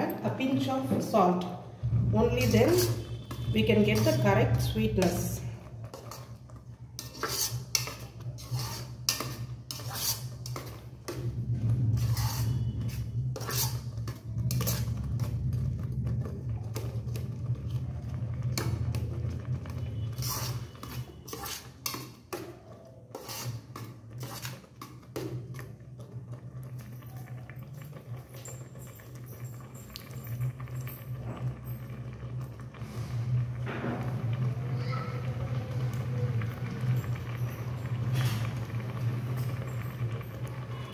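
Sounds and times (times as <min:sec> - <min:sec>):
metal ladle scraping metal pot: 0:00.7 - 0:26.3.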